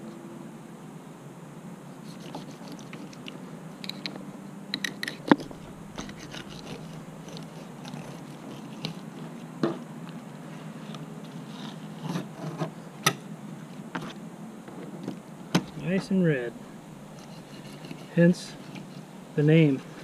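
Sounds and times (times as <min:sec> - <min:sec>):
knife cutting through fish bone: 0:02.1 - 0:03.3, 0:05.5 - 0:09.0.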